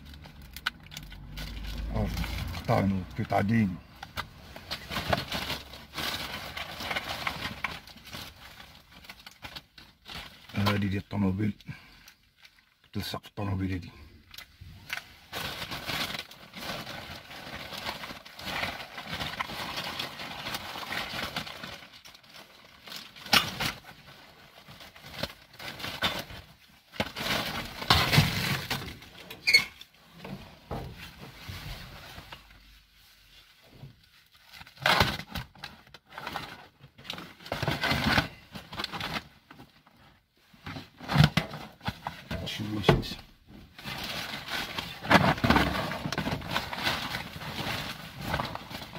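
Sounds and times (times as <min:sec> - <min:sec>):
plastic bags rustling: 0:00.0 - 0:12.8, 0:13.6 - 0:48.9
items knocking and scraping: 0:27.0 - 0:32.0, 0:40.6 - 0:48.9.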